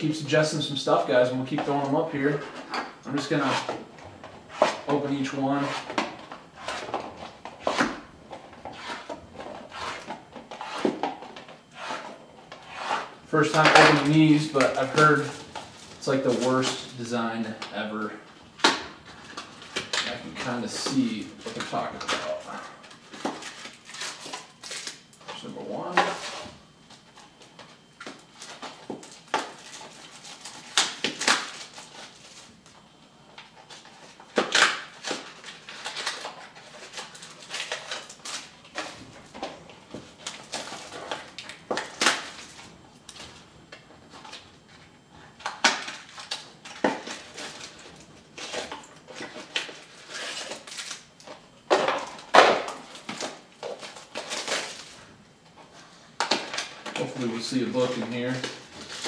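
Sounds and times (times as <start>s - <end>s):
wrappers crinkling and tearing: 19.2s - 32.6s, 33.4s - 39.0s, 45.4s - 55.1s, 56.2s - 59.0s.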